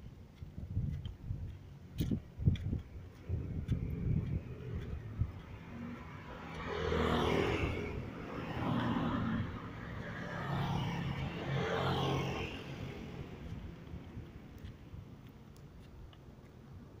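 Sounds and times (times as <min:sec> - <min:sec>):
scooters and cars passing: 0:01.0 - 0:17.0.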